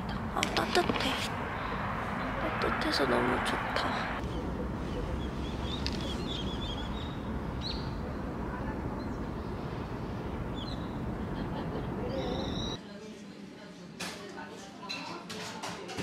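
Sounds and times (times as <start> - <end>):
low rumble of background noise: 0.0 - 12.8
small birds chirping: 4.2 - 11.2, 12.0 - 12.8.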